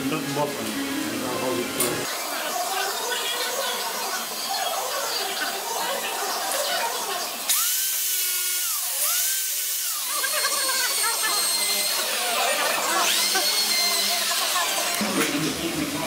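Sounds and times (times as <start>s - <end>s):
power tool whine: 7.3s - 15.6s.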